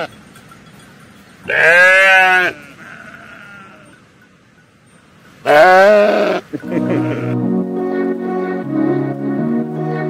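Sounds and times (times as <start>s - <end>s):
livestock bleating: 1.5s - 4.0s, 5.4s - 7.4s.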